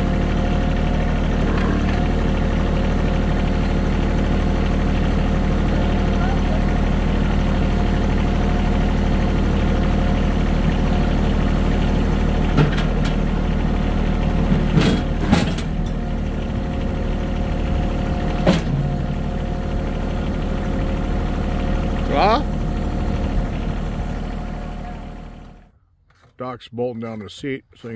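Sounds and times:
tractor engine idling: 0.0 - 27.9.

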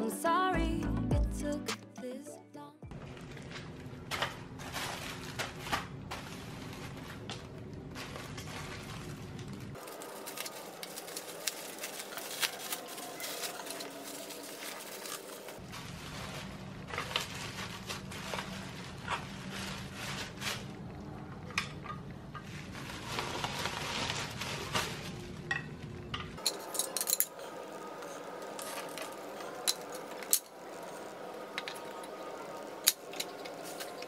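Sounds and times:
small hard objects clinking: 8.2 - 15.6, 26.4 - 34.0.

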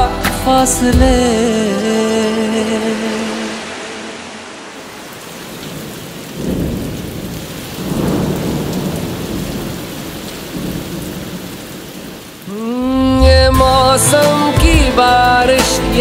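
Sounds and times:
rain hissing: 0.6 - 16.0
thunder rumbling: 3.0 - 14.9.

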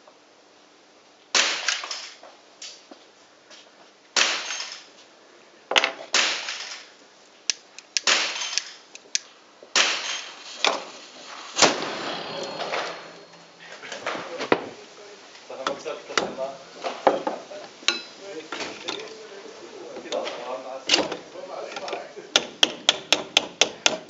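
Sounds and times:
model cannons firing: 8.0 - 8.8, 9.7 - 13.3.

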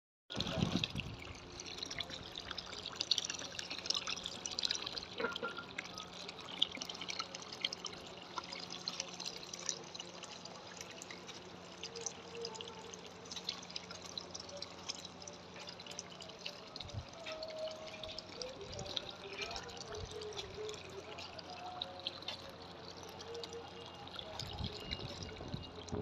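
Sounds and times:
fountain water splashing into basin: 0.3 - 26.0.

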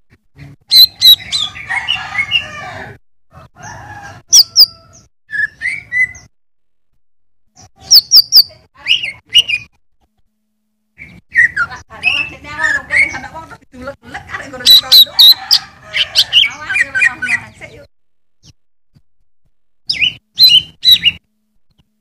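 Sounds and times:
bird whistling and warbling: 0.7 - 2.4, 4.3 - 6.3, 7.6 - 9.8, 11.0 - 13.4, 14.7 - 17.6, 19.9 - 21.2.

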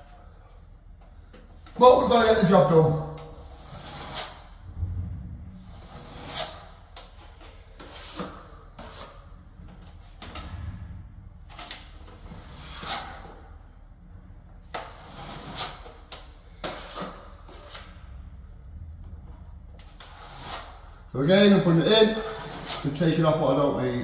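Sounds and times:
trowel scraping wet filler: 3.2 - 4.5, 5.7 - 9.3, 11.6 - 13.4, 14.7 - 18.1, 19.8 - 21.0, 21.9 - 23.3.

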